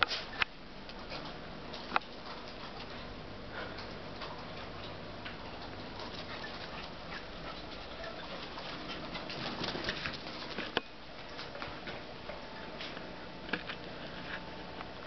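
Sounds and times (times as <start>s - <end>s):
dog paws pattering on carpet: 3.8s - 13.1s.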